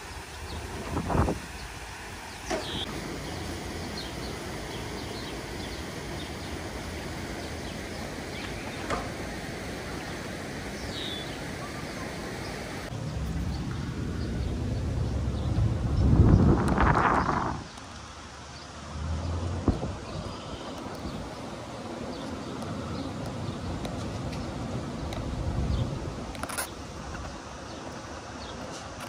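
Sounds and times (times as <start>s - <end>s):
rushing water: 0.0s - 29.0s
wind buffeting microphone: 0.5s - 1.6s, 13.1s - 17.8s, 19.2s - 27.4s.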